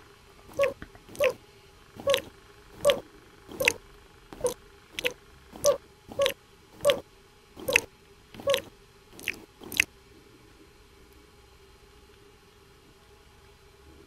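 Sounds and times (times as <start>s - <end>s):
cartoon slurping and licking: 0.5s - 1.4s, 2.0s - 3.8s, 4.4s - 7.0s, 7.6s - 9.9s.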